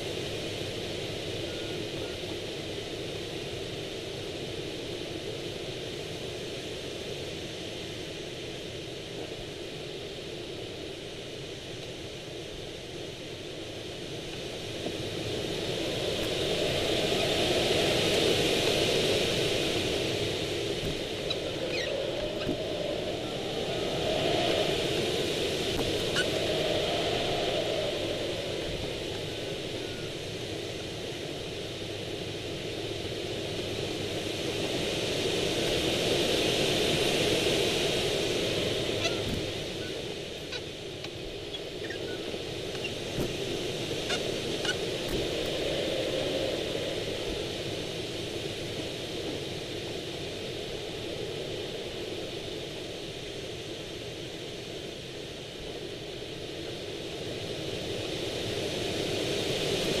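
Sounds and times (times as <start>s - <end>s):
airflow rushing past glider: 9.8s - 53.7s.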